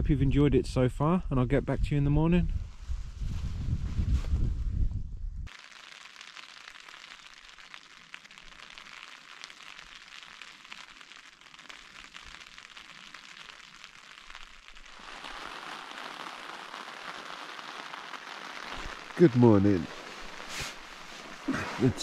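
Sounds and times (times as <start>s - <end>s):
rain on a tent: 5.5s - 22.0s.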